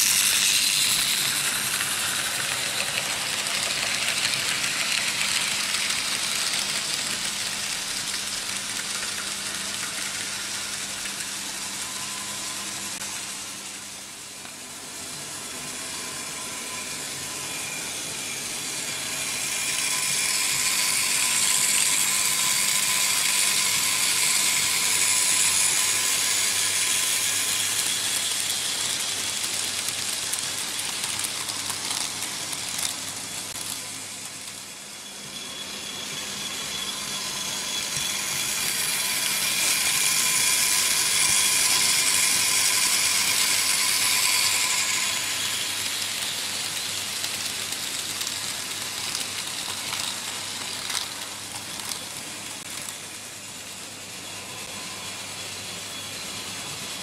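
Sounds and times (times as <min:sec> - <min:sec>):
model train wheels clattering: 0:00.0 - 0:12.1, 0:19.1 - 0:35.4, 0:36.8 - 0:53.0
small motors whining: 0:00.0 - 0:13.0, 0:13.6 - 0:57.0.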